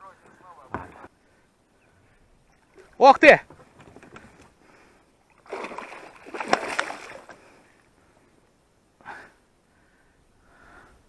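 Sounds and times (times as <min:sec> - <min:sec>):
fish thrashing in water: 0:05.3 - 0:07.5
short splash: 0:05.4 - 0:07.4.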